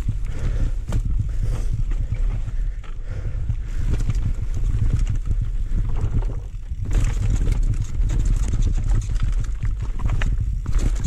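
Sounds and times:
wind and tyres rumbling: 0:00.0 - 0:11.0
bike chain and frame clattering: 0:03.7 - 0:11.0.

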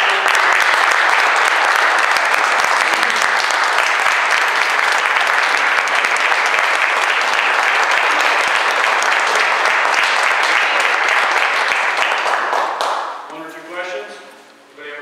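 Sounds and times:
audience applauding: 0:00.0 - 0:13.3.

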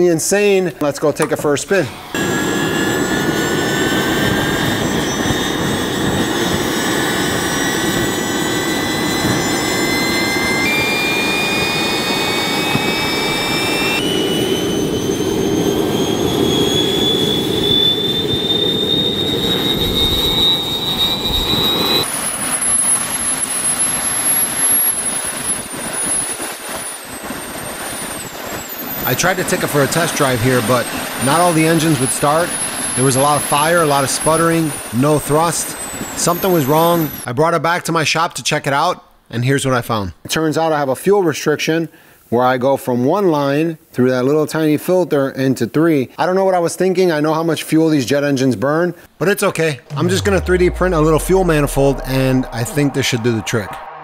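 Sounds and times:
jet engine roar and turbine whine: 0:01.2 - 0:37.3, 0:49.9 - 0:54.0
engine sputtering: 0:49.9 - 0:52.8.

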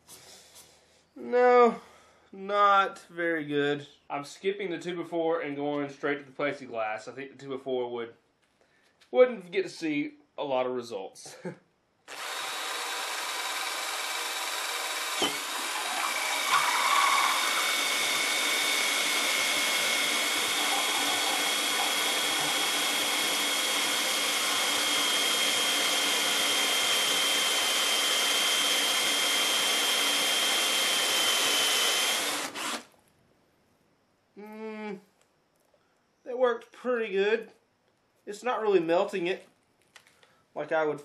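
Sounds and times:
cordless drill whining: 0:12.1 - 0:32.9
drill bit rasping through plastic: 0:12.1 - 0:32.9.

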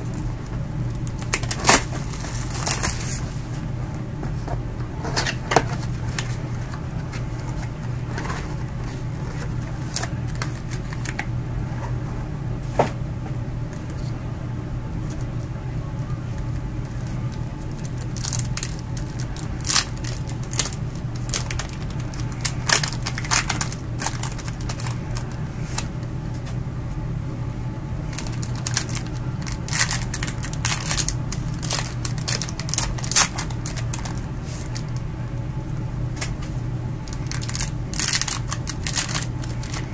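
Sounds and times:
steady low hum: 0:00.0 - 0:39.9
card pack wrapper crinkling: 0:00.9 - 0:03.2, 0:05.3 - 0:11.3, 0:16.8 - 0:25.9, 0:28.1 - 0:35.0, 0:37.0 - 0:39.9.

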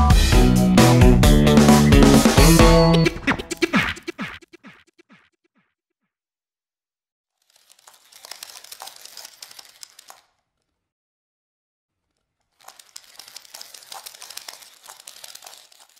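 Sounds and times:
crinkling rustling: 0:07.3 - 0:10.9, 0:11.9 - 0:15.9.

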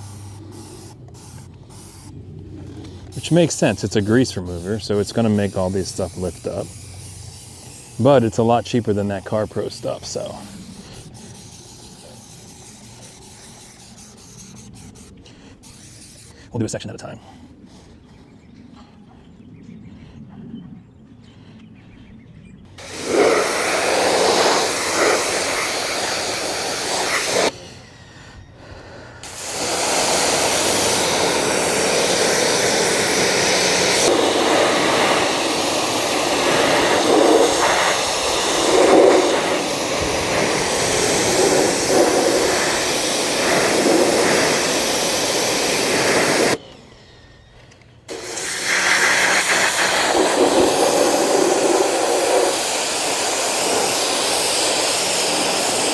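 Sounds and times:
pressure washer spraying: 0:00.0 - 0:02.1, 0:03.1 - 0:15.0, 0:22.8 - 0:27.5, 0:29.2 - 0:46.6, 0:48.1 - 0:55.9.

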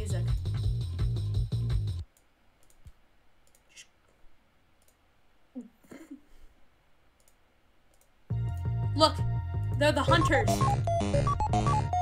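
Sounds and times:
faint clicks: 0:02.1 - 0:04.2, 0:04.8 - 0:05.0, 0:07.2 - 0:08.2.

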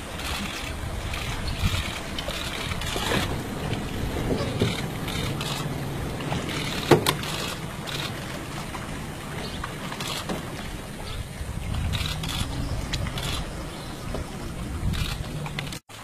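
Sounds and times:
wind noise on microphone: 0:00.0 - 0:15.8
low rumble: 0:00.7 - 0:15.8.

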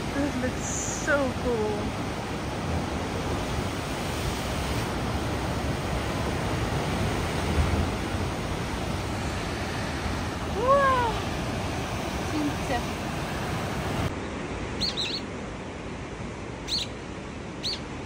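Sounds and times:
sea surf breaking on rocks: 0:00.0 - 0:14.2.

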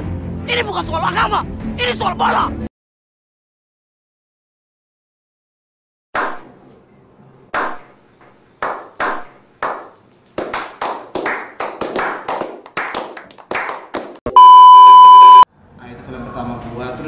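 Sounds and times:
group clapping: 0:06.2 - 0:06.5, 0:07.6 - 0:07.9, 0:08.6 - 0:14.2.

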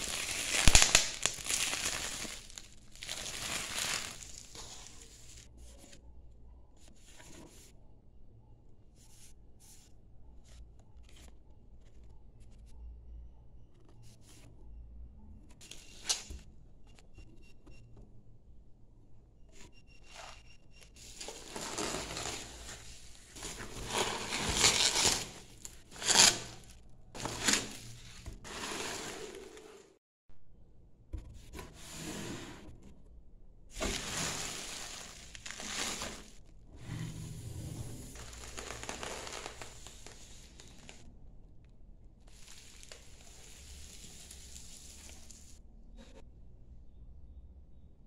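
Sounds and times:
bubble wrap crinkling: 0:00.0 - 0:05.6, 0:21.0 - 0:29.6, 0:33.8 - 0:36.4, 0:38.1 - 0:41.0, 0:42.3 - 0:45.6.

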